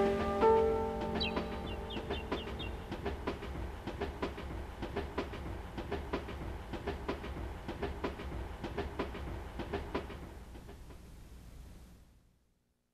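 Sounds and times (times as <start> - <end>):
instrumental music: 0.0 - 9.5
rhythmic clicking percussion: 0.0 - 10.8
low steady hum: 10.4 - 12.9.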